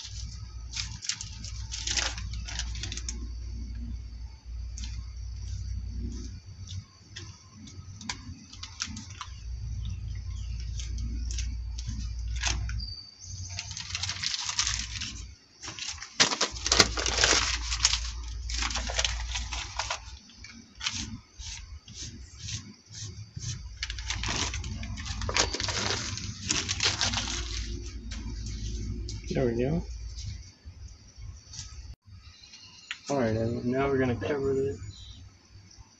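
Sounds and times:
plastic and paper crinkling: 0.0 - 3.2, 7.2 - 9.4, 10.6 - 12.8, 13.5 - 22.2, 23.4 - 29.0.

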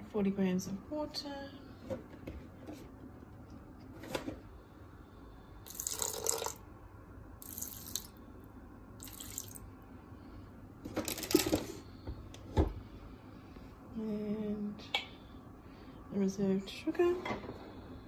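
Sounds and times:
water pouring into steel bowl: 5.7 - 6.6, 9.0 - 9.6.

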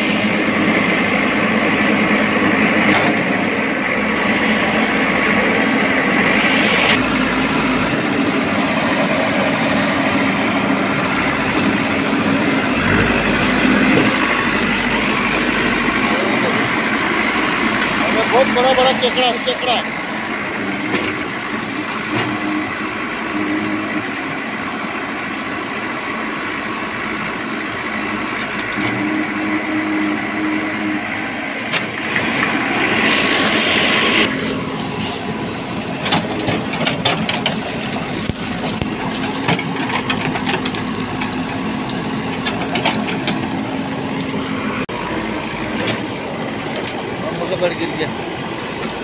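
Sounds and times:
diesel engine under load: 0.0 - 49.0
hissing surge: 30.6 - 36.0.

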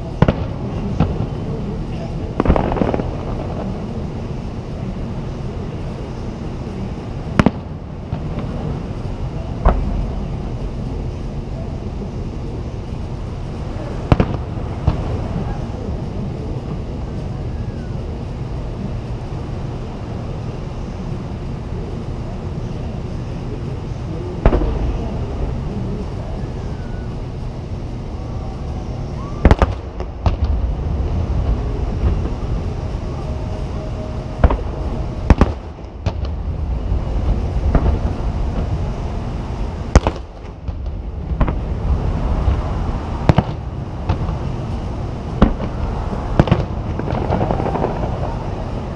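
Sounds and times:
distant firework bangs: 0.0 - 10.8, 13.4 - 18.0, 24.3 - 27.4, 29.3 - 48.9
low background rumble: 0.0 - 48.9.

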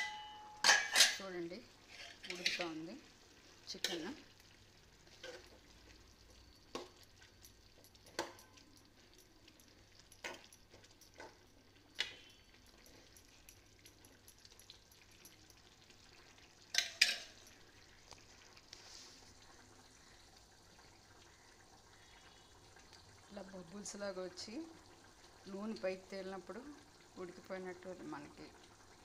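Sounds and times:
ladle knocking metal pan: 0.0 - 1.2
ladle stirring curry: 0.1 - 19.3
curry bubbling: 0.2 - 29.0.

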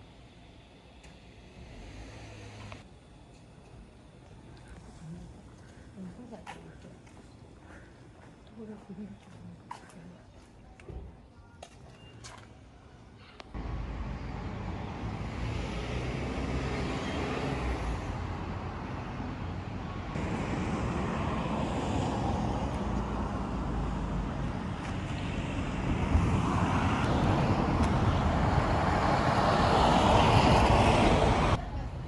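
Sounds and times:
passing cars and trucks: 0.0 - 3.0, 13.4 - 32.0.

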